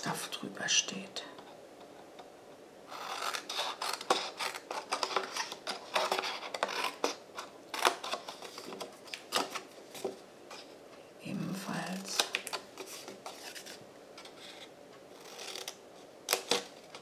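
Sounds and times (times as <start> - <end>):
paper rustling: 3.2 - 10.7, 12.0 - 14.7.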